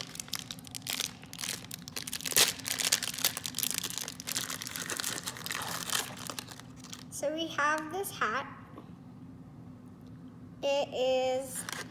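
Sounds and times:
plastic wrapper crackling: 0.0 - 7.2, 11.6 - 11.9.

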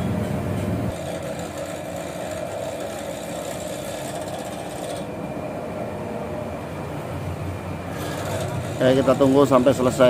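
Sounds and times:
drill press cutting metal: 0.9 - 5.1, 7.9 - 10.0.

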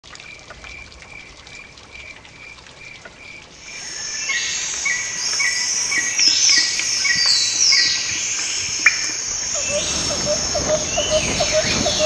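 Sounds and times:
insect chirping: 3.6 - 12.0
high-pitched insect buzzing chorus: 3.7 - 12.0.

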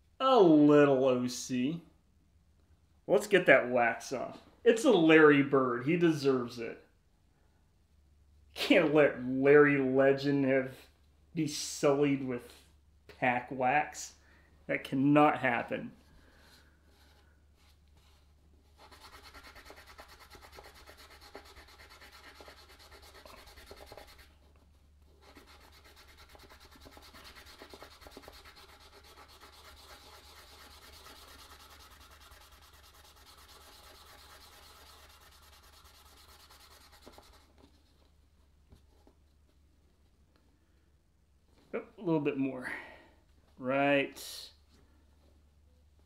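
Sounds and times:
pad rubbing on cardboard card: 16.9 - 38.0.

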